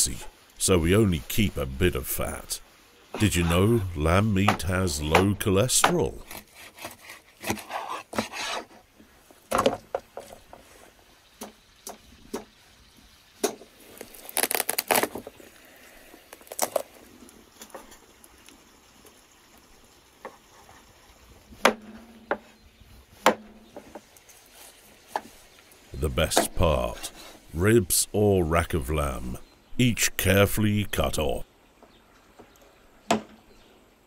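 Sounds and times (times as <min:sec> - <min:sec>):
slicing and handling meat: 0:05.9 - 0:08.8, 0:13.9 - 0:15.1.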